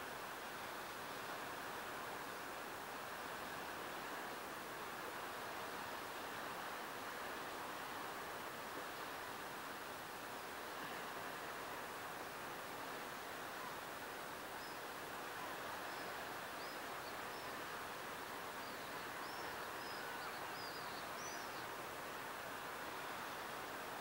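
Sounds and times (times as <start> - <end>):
calm sea waves on shore: 0.0 - 24.0.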